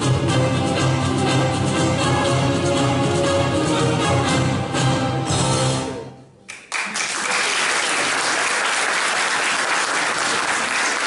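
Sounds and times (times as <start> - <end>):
music: 0.0 - 6.6
audience applause: 6.5 - 11.0.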